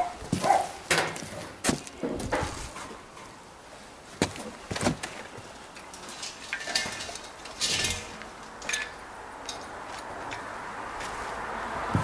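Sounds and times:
metallic clinks and knocks: 5.9 - 10.4.

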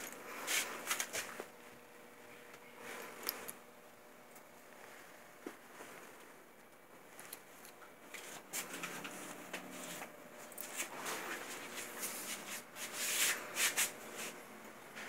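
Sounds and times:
rustling and scuffing: 4.8 - 6.4, 8.1 - 14.5.

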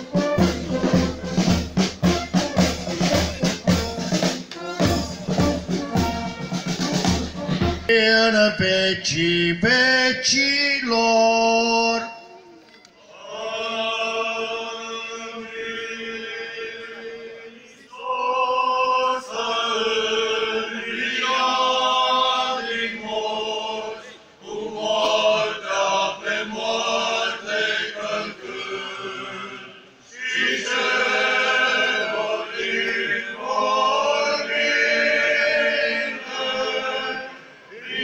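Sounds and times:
male choir chanting unaccompanied: 7.8 - 12.2, 13.0 - 38.0.

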